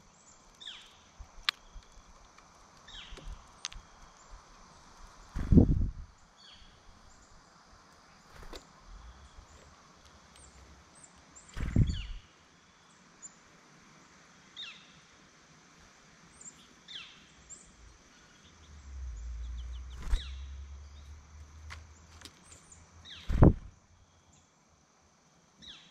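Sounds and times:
songbird calls: 0.0 - 2.1, 2.9 - 13.4, 14.6 - 15.1, 16.3 - 24.5, 25.6 - 25.9
low rumble: 17.8 - 21.6.

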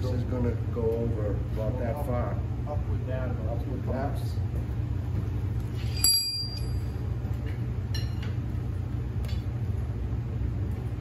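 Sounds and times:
steady low hum: 0.0 - 11.0
metal clinks with ringing: 5.8 - 7.0.

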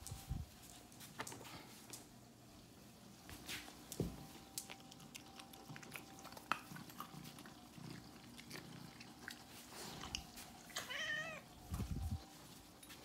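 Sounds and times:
cats crunching dry treats: 4.5 - 11.0.

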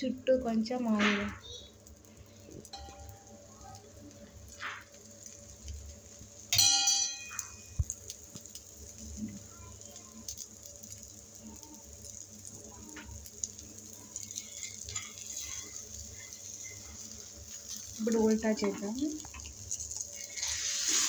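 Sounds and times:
oil sizzling in pan: 0.0 - 21.0
metal utensil clink: 6.5 - 7.7.

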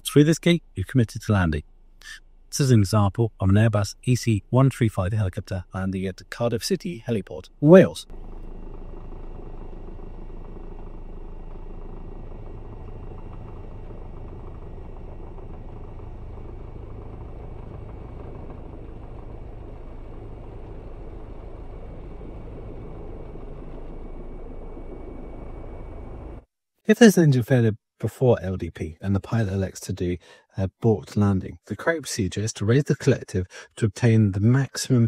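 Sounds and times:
faint high steady tones: 0.0 - 26.5
helicopter rotor and turbine noise: 5.2 - 26.5.

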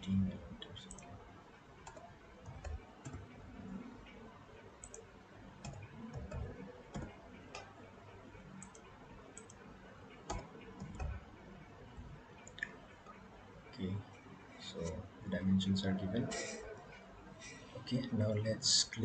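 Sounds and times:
low room noise: 0.0 - 19.0
computer mouse clicks: 0.8 - 1.2, 1.8 - 4.2, 4.8 - 7.8, 8.4 - 11.3
keyboard key presses: 10.3 - 11.2.

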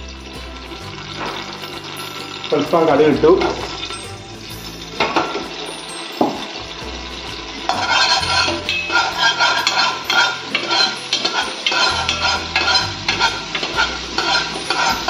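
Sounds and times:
seeds crackling in hot oil: 0.0 - 15.0
metal spoon scraping pot: 7.7 - 15.0.

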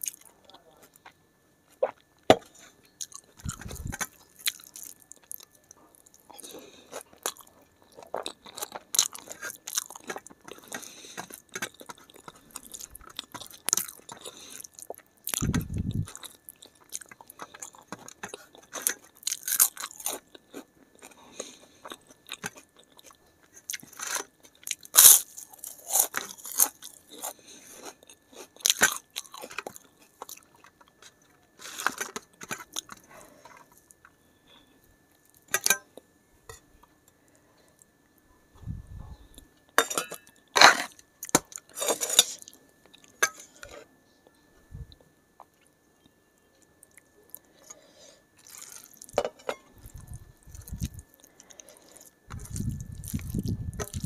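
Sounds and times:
chewing crisp food: 0.0 - 34.1, 44.9 - 54.0.

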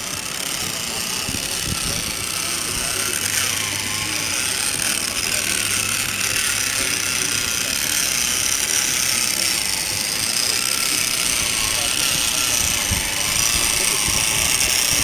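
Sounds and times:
electric motor whine: 0.0 - 15.0.

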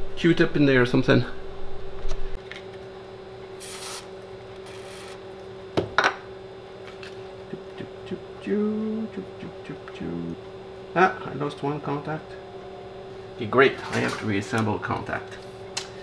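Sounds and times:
steady low hum: 0.0 - 16.0
aerosol spray hisses: 3.6 - 4.1.

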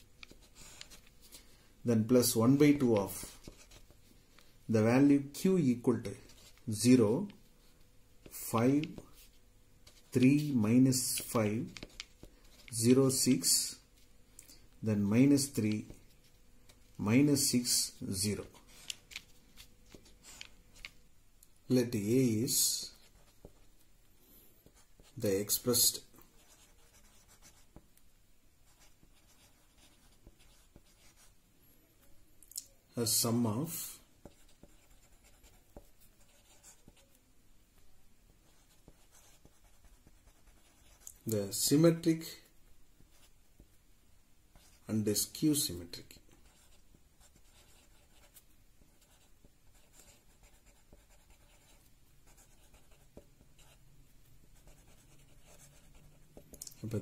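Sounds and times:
pen scratching on paper: 0.0 - 1.4, 2.6 - 4.0, 11.0 - 12.8, 22.8 - 23.7, 24.6 - 25.6, 26.4 - 27.8, 28.6 - 31.3, 34.2 - 37.2, 38.4 - 41.1, 44.5 - 44.9, 46.4 - 53.8, 54.6 - 57.0.

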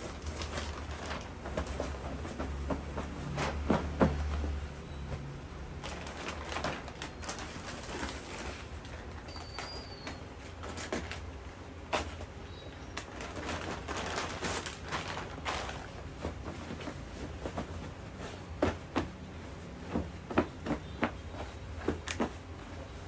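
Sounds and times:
plastic packaging crinkling: 0.0 - 2.6, 3.2 - 18.2
pillow fabric rustling: 0.0 - 12.4, 13.0 - 23.0.

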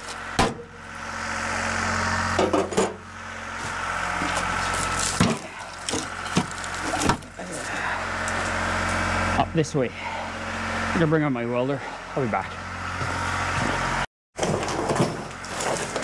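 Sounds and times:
small engine running: 0.0 - 14.1.

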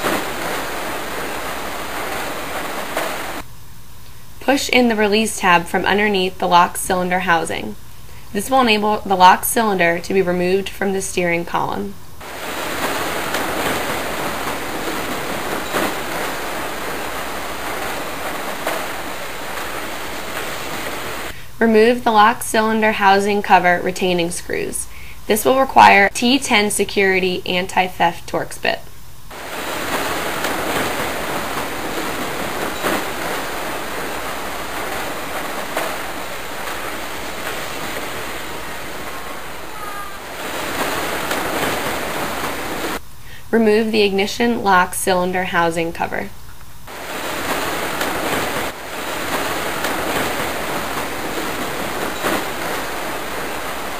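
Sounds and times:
steady rushing noise: 0.0 - 3.6, 12.0 - 21.4, 29.2 - 43.0, 46.8 - 53.9.

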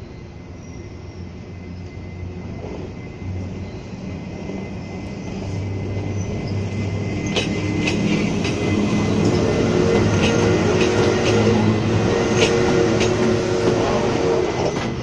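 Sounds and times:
electric locomotive hum: 0.0 - 15.0
wheels clicking over rail joints: 7.2 - 11.7.

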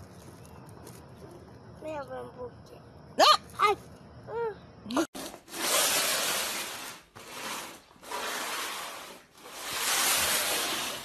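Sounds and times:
cardboard box scraping on floor: 5.2 - 11.0.

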